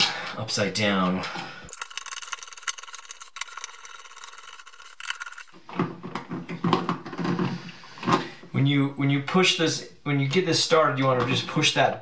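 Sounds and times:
screwdriver turning screw: 1.7 - 5.6.

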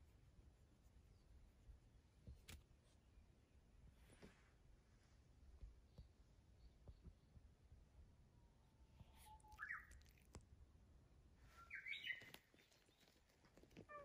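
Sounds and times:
faint bird chirps: 5.8 - 7.5, 8.2 - 10.3, 11.4 - 14.0.

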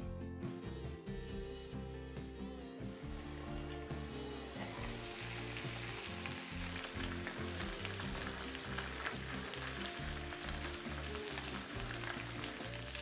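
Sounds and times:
dumplings sizzling in a frying pan: 3.0 - 13.0.

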